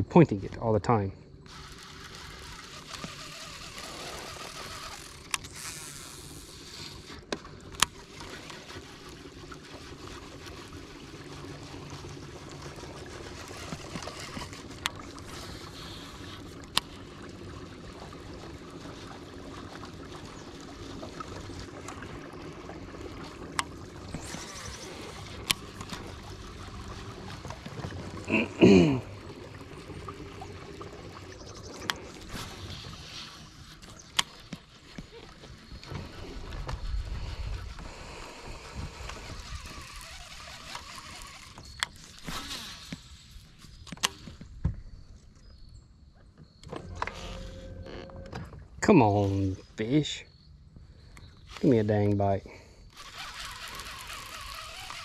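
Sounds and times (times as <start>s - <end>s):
electric trolling motor hum: 0.0s - 44.6s, 46.5s - 55.0s
water trickling at hull: 0.0s - 55.0s
fishing reel clicks: 1.4s - 17.0s, 23.5s - 27.0s, 38.5s - 44.4s, 52.9s - 55.0s
whirs of casts: 1.4s - 45.4s, 51.1s - 55.0s.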